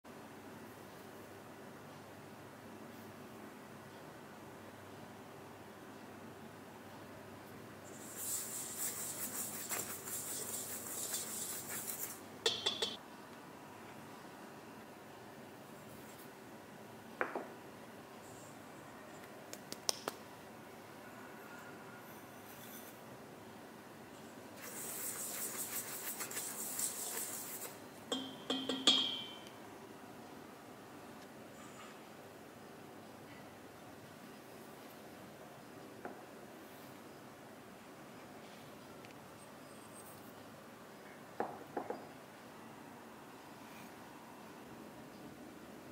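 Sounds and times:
flour stirred in bowl: 0:07.9 - 0:13.0, 0:24.6 - 0:27.8
utensil clinking against bowl: 0:12.4 - 0:13.0, 0:28.1 - 0:29.5.

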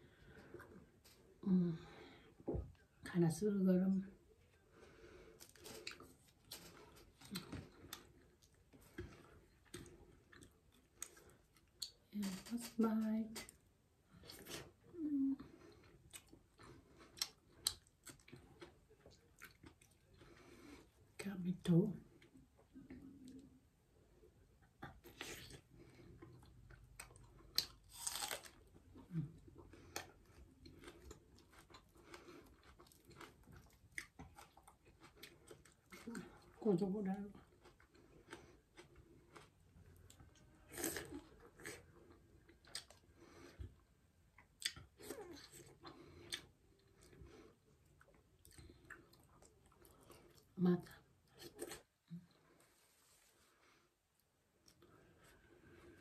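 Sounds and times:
wet chewing and smacking: 0:05.4 - 0:12.1, 0:15.6 - 0:21.0, 0:24.8 - 0:36.6, 0:37.3 - 0:50.6.

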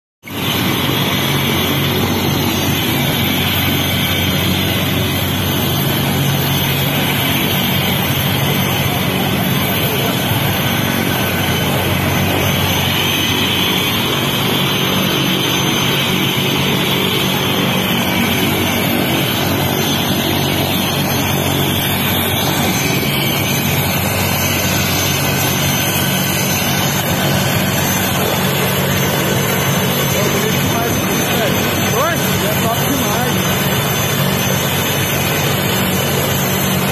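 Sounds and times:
helicopter engine and rotor: 0:00.2 - 0:36.9.

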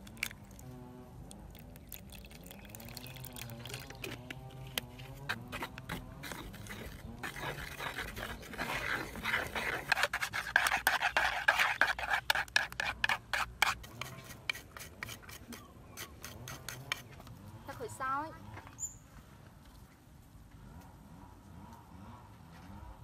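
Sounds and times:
stick scraping wooden bowl: 0:02.8 - 0:18.0.

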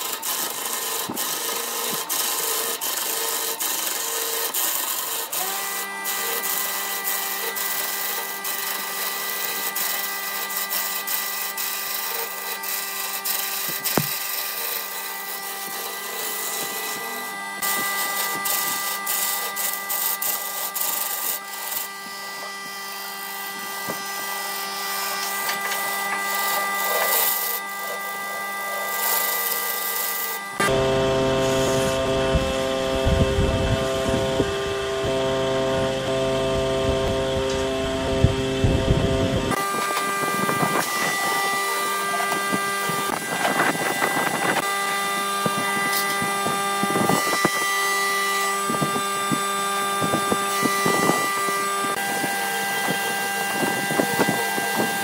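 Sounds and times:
gouge scraping spinning wood: 0:00.0 - 0:55.0
lathe humming: 0:00.0 - 0:55.0.

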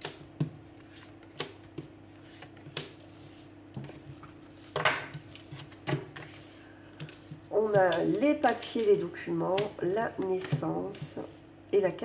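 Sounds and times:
cards rustling: 0:00.7 - 0:09.2.

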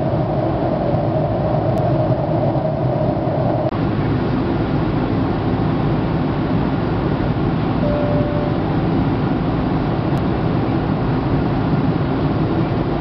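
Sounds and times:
airplane cabin engine rumble: 0:00.0 - 0:13.0
short single tone: 0:07.8 - 0:08.8.

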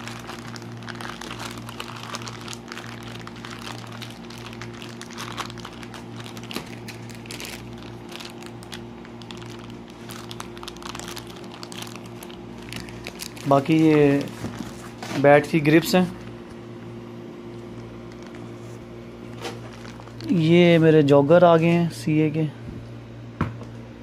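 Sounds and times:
plastic wrapping crinkling: 0:00.0 - 0:15.7, 0:17.8 - 0:20.8
steady low hum: 0:00.0 - 0:24.0.

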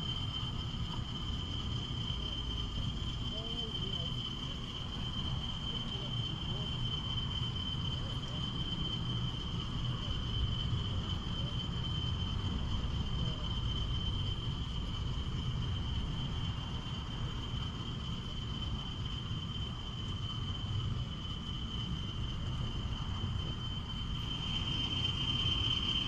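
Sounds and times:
continuous low rumble: 0:00.0 - 0:26.0
high-pitched insect-like trill: 0:00.0 - 0:26.0.

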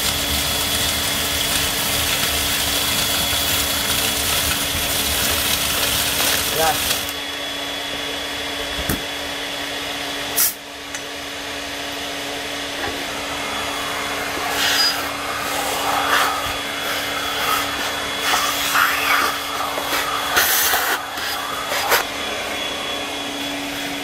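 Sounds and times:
vacuum air rushing through hose: 0:10.2 - 0:24.0
plastic cover and hose scraping: 0:14.4 - 0:22.1.

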